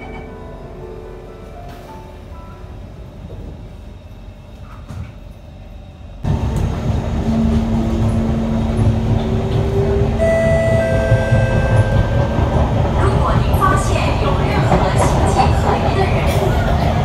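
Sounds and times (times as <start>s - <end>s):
train carriage low rumble: 0.0s - 17.0s
whining tones: 6.2s - 14.0s.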